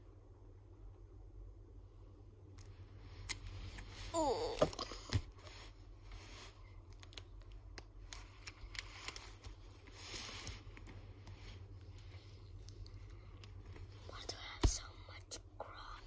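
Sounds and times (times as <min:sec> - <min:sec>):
plastic sleeve pages crinkling: 0:06.2 - 0:14.0.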